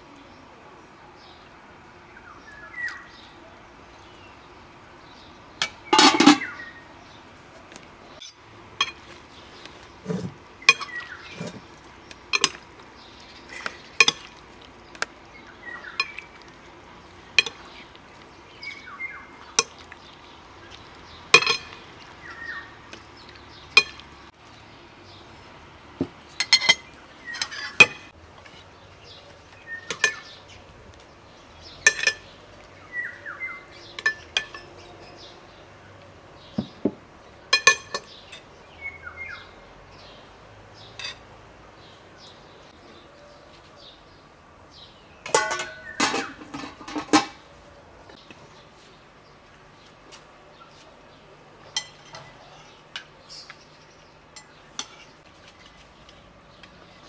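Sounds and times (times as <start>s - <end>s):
birds chirping: 0.0s - 57.0s
utensils clinking on dishes: 5.6s - 6.5s, 10.0s - 11.6s, 21.4s - 21.8s, 26.4s - 28.1s, 31.8s - 32.3s, 34.0s - 35.1s, 37.5s - 38.5s, 45.3s - 47.4s, 51.7s - 52.3s
metal clank in a pot: 5.6s - 6.6s, 8.2s - 9.1s, 10.0s - 11.6s, 14.0s - 14.3s, 21.4s - 21.8s, 23.8s - 24.0s, 26.4s - 28.1s, 29.9s - 30.3s, 31.8s - 32.3s, 34.0s - 34.8s, 37.5s - 38.2s, 45.2s - 47.4s, 51.7s - 52.3s.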